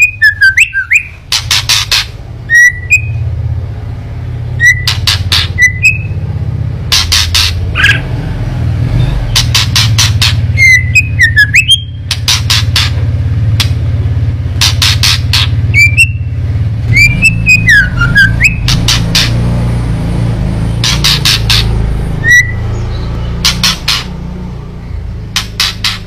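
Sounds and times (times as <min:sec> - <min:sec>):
bird harsh clicking rattles: 0:00.0 - 0:02.2, 0:04.6 - 0:06.1, 0:06.9 - 0:08.0, 0:09.3 - 0:13.0, 0:13.6 - 0:13.8, 0:14.5 - 0:16.1, 0:18.4 - 0:19.4, 0:20.8 - 0:22.4, 0:23.4 - 0:24.2, 0:25.3 - 0:26.0.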